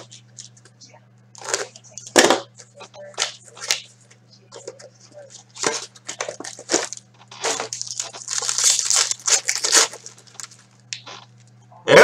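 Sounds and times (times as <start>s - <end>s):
low steady hum: 0.0s - 12.0s
foil wrapper tearing and crinkling: 1.4s - 2.1s, 5.4s - 11.5s.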